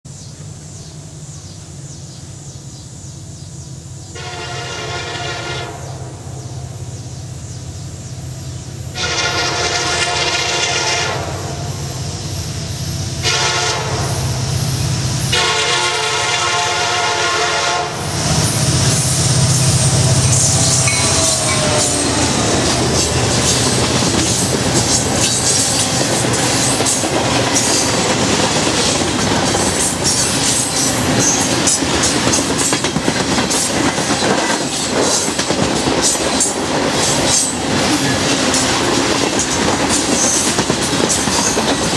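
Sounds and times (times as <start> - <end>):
locomotive engine hum: 0.1 - 41.9
train air horn blasts: 4.1 - 6.2, 8.9 - 11.8, 13.2 - 18.4, 19.2 - 23.8
freight cars rumbling: 5.8 - 41.9
wheels clacking over rail joints: 18.3 - 41.9.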